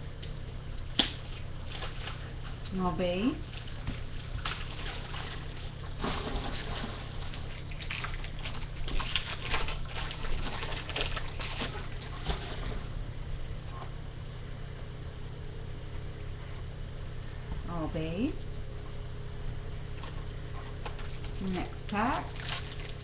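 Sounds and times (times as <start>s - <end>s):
plastic wrapper crinkling and tearing: 4.0s - 12.2s, 22.1s - 23.0s.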